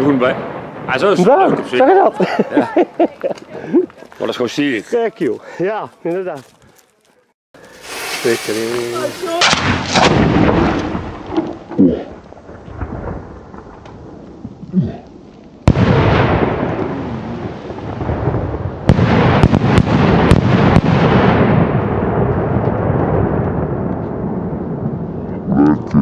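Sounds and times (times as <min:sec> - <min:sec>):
firework shells bursting: 0:07.6 - 0:12.3
sharp cracks: 0:07.7 - 0:12.7
loud blast with rumbling echo: 0:09.0 - 0:15.0, 0:15.6 - 0:26.0.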